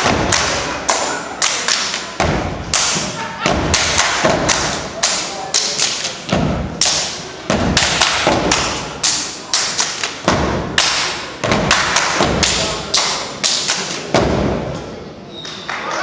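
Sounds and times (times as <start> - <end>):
hand claps: 0.2 - 2.1, 2.7 - 6.2, 6.8 - 7.2, 7.8 - 14.1.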